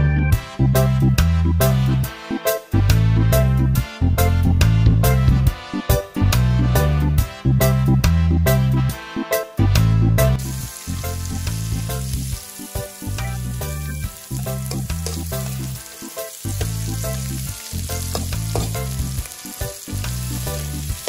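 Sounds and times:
background music with bass: 0.0 - 21.0
vegetables sizzling in a wok: 10.4 - 21.0
metal spoon scraping a pan: 14.2 - 19.2.

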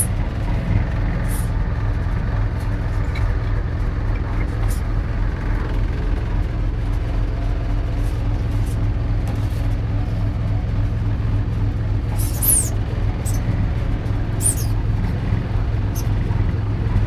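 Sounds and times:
lorry engine drone: 0.0 - 17.0
high squeak: 12.2 - 13.4, 14.4 - 14.8.

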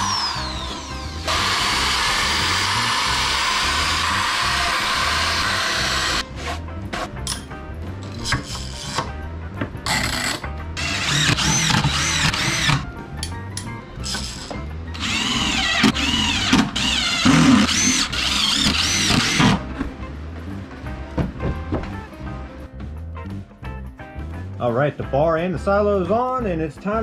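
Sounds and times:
cordless drill motor whining: 0.0 - 6.2, 10.8 - 12.8, 14.0 - 19.6.

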